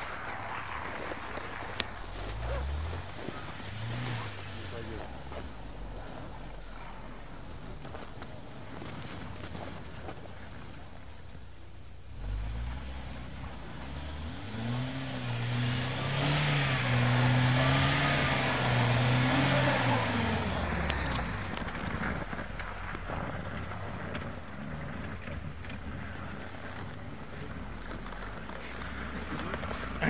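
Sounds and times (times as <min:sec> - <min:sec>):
tyres churning through snow: 0:00.0 - 0:30.0
engine revving under load: 0:01.4 - 0:07.2, 0:12.1 - 0:25.4.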